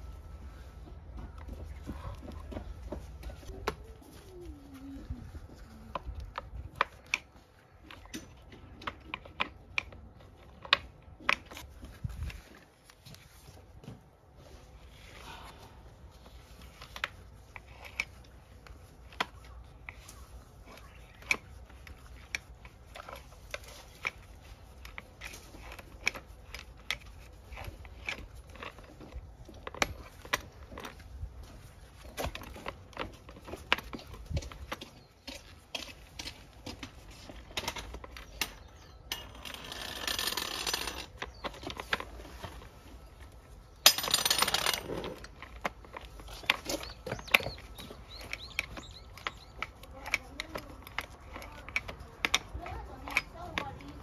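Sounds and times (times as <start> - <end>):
screwdriver clicking on plastic: 45.9 - 54.0.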